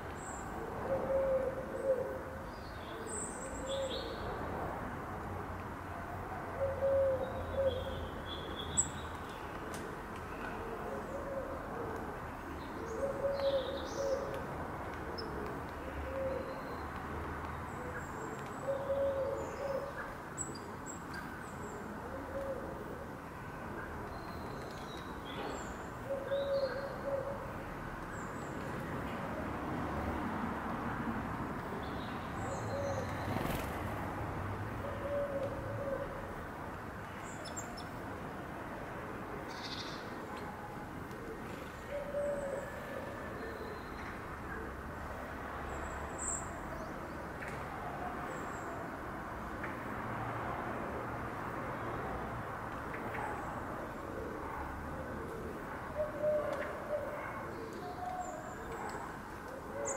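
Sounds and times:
pigeon cooing: 54.1 - 59.9.

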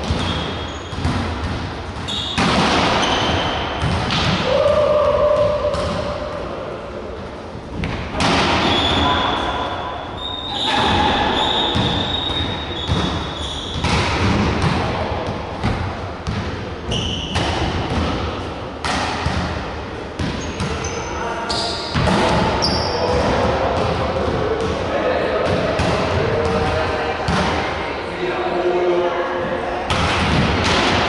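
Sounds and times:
volleyball thuds in gym: 0.0 - 6.3, 10.7 - 20.8, 29.9 - 31.0.

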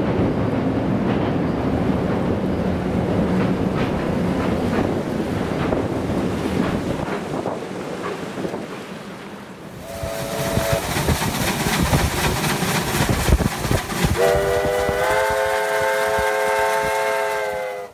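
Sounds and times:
steam locomotive clatter: 0.0 - 8.8, 9.8 - 17.9
steam whistle: 9.8 - 10.9, 14.2 - 17.9.

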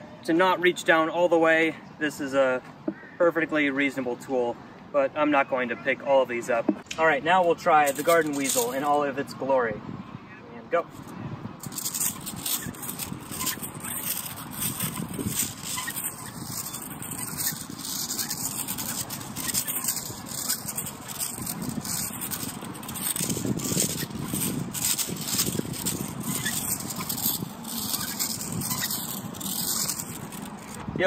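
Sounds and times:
wire roller scraping over asphalt: 6.0 - 9.3, 10.8 - 31.0
small clicks and rattles: 11.6 - 30.8.

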